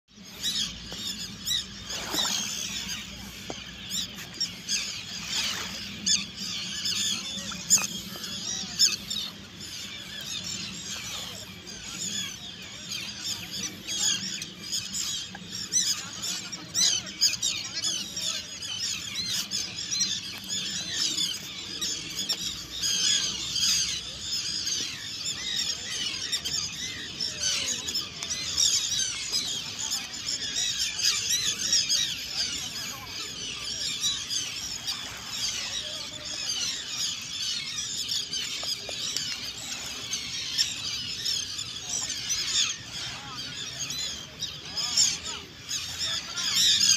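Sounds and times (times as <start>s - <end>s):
seabirds calling: 0.1s - 46.9s.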